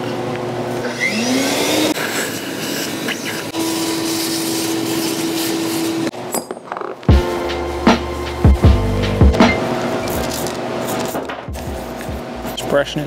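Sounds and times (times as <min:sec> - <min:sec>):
shop vacuum sucking air: 0:00.0 - 0:06.2
music with heavy bass: 0:07.1 - 0:10.3, 0:11.4 - 0:12.5.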